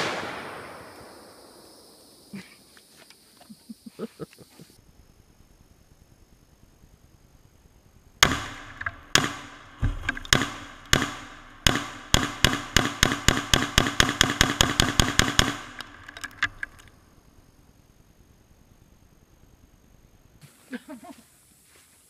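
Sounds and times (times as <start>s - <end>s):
rifle shots: 0.0s - 1.7s, 8.2s - 16.1s.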